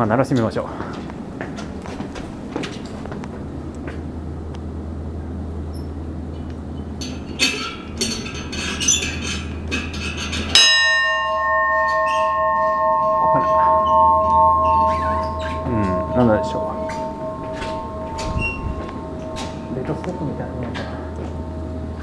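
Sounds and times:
bell ringing: 10.6s - 22.0s.

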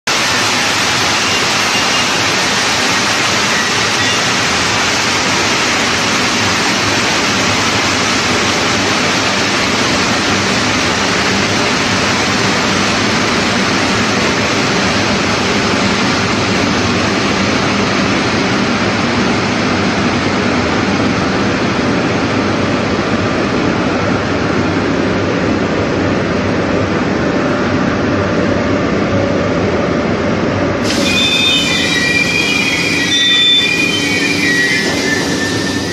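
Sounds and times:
sand blasting machine hissing: 30.8s - 35.9s.

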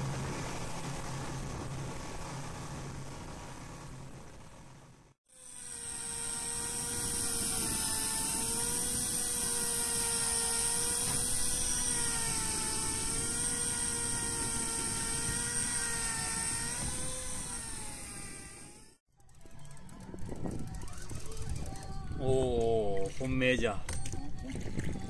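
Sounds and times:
electric fishing reel motor whining: 5.3s - 22.1s.

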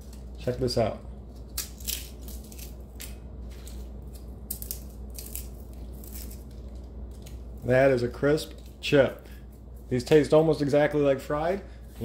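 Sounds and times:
potato chip crunching: 1.4s - 7.8s.

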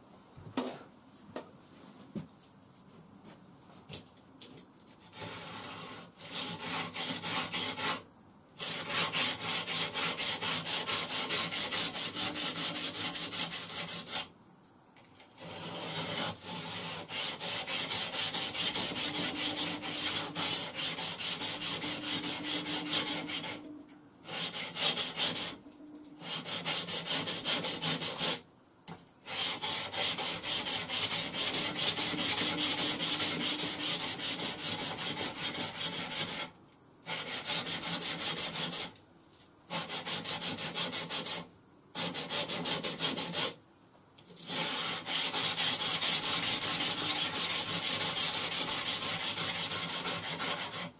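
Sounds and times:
knife scraping on grinding belt: 18.0s - 23.6s.

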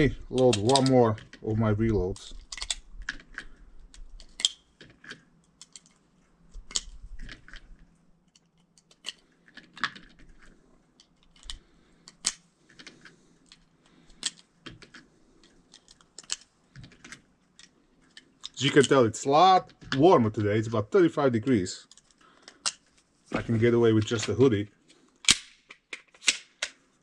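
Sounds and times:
cartridges clicking into magazine: 25.2s - 26.8s.

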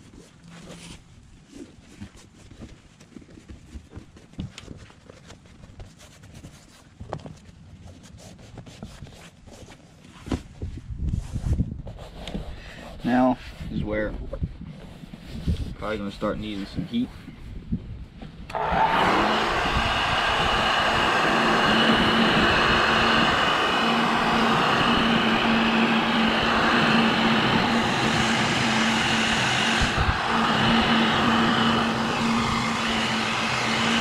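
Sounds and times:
heat gun fan humming: 18.5s - 34.0s.

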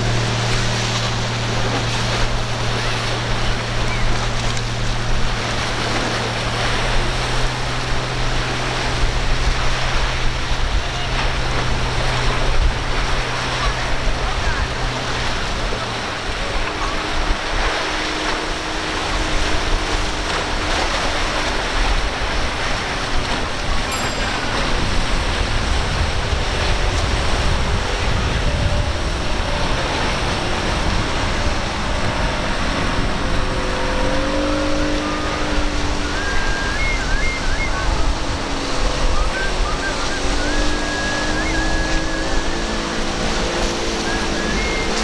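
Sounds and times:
faint outboard motor hum: 0.0s - 45.0s
rushing water and wind: 0.0s - 45.0s.

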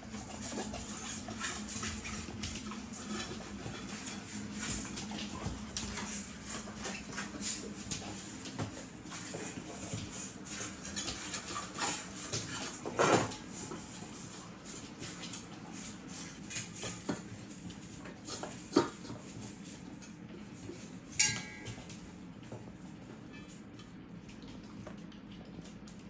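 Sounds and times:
dog eating from metal bowl: 0.0s - 26.0s
metal bowl clanking: 21.2s - 21.9s.

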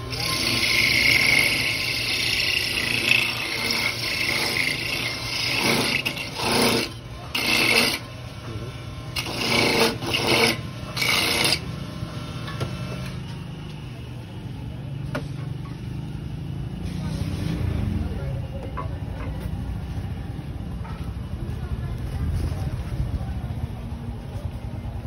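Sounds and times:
motorized coconut grater rasping: 0.0s - 11.8s.

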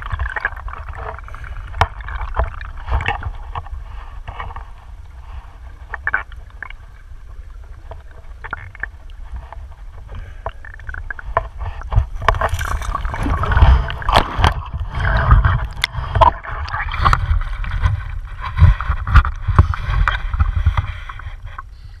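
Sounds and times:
water churning and gurgling: 0.0s - 22.0s
low rumble: 10.9s - 22.0s.

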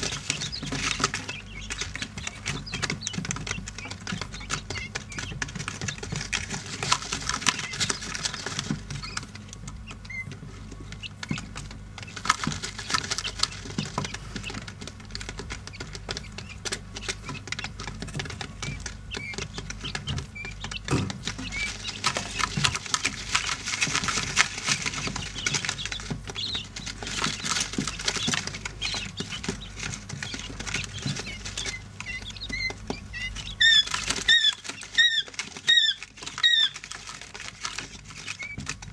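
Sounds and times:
chicks pecking and scratching: 0.0s - 38.9s
chicks peeping: 0.0s - 38.9s.

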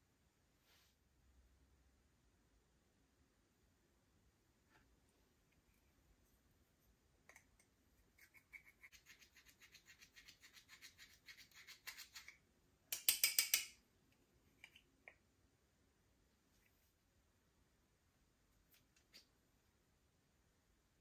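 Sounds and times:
slime stirred and scraped: 5.6s - 12.4s.

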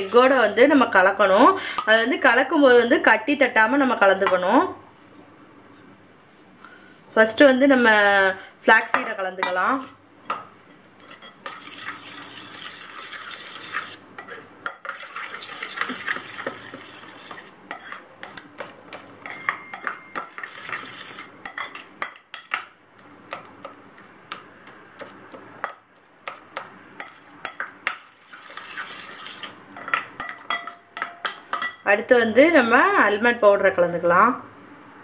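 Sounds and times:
spoon scraping metal bowl: 0.0s - 0.6s, 1.8s - 2.2s, 8.8s - 10.0s, 10.6s - 22.6s, 25.0s - 31.8s
spoon clinking against bowl: 19.2s - 22.6s, 29.8s - 31.8s.

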